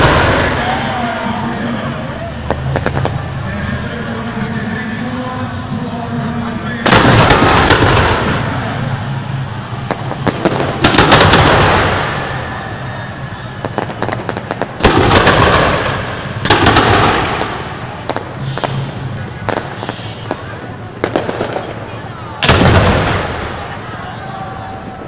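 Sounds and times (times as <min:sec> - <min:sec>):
firework crackling pops: 0:02.4 - 0:03.2, 0:06.9 - 0:08.6, 0:09.8 - 0:12.6, 0:13.6 - 0:21.8
firework shells bursting: 0:02.4 - 0:03.3, 0:13.6 - 0:21.7.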